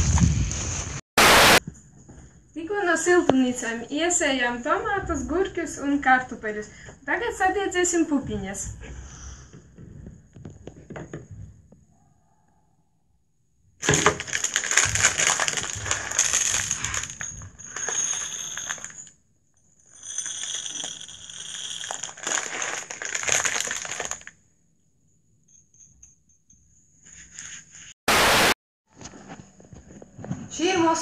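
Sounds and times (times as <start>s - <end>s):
beans rattling onto glass: 13.8s - 19.1s, 19.9s - 24.3s.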